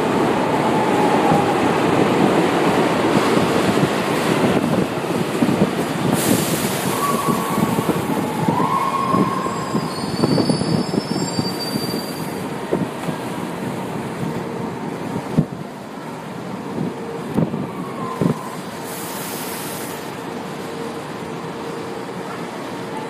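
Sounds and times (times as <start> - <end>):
train wheels and motors rumbling: 0.0 - 23.0
brief hiss: 18.8 - 20.1.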